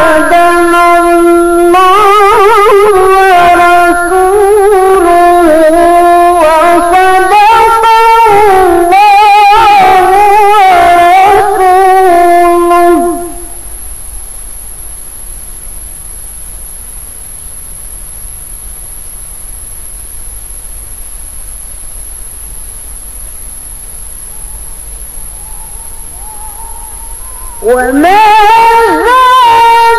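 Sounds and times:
woman reciting melodically: 0.0s - 13.7s, 25.4s - 29.9s
faint high-pitched whine: 0.0s - 29.9s
steady hiss: 0.0s - 29.9s.

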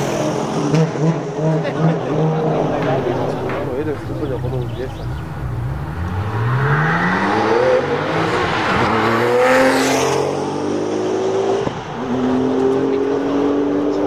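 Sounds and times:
sports car accelerating: 0.0s - 14.0s.

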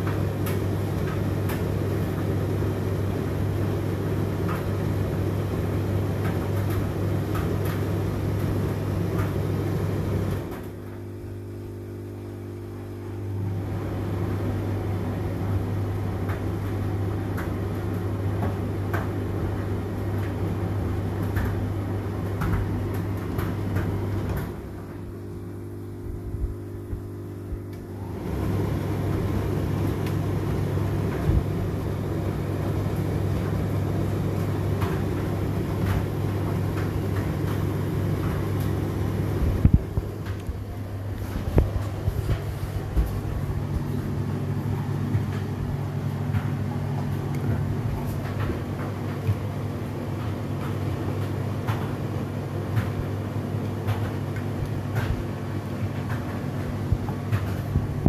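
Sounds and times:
dryer motor hum: 0.0s - 58.0s
rustle of turning drum: 27.0s - 58.0s.

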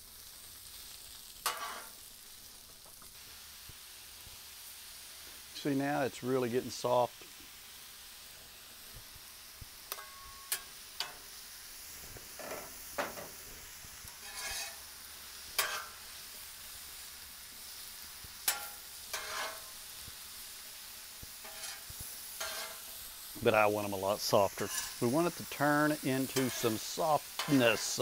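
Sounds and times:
vegetables sizzling on griddle: 0.0s - 28.0s
metal spatulas scraping and clacking: 1.5s - 1.9s, 14.2s - 14.8s, 15.6s - 16.0s, 18.5s - 19.7s, 21.4s - 22.9s, 24.6s - 25.0s, 26.2s - 28.0s.

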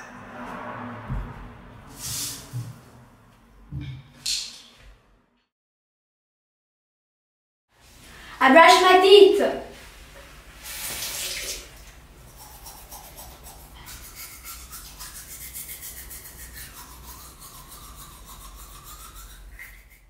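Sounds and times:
toothbrush scrubbing teeth: 10.7s - 20.0s.

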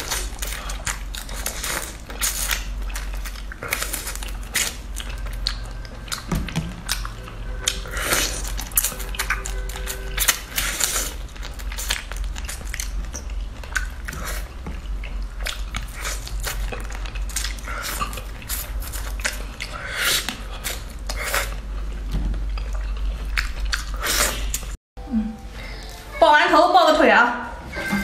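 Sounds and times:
shrimp shells crunching when chewed: 0.0s - 21.9s
steady low hum: 0.0s - 28.0s.

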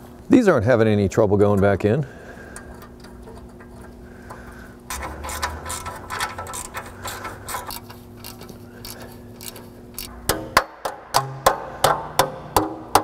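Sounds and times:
ratchet wrench clicking rapidly: 4.9s - 10.1s.

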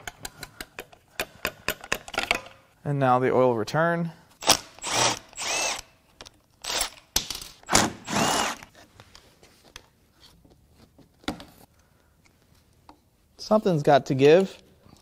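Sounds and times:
power tool whirring: 4.4s - 5.9s, 6.6s - 7.0s, 7.6s - 8.7s.

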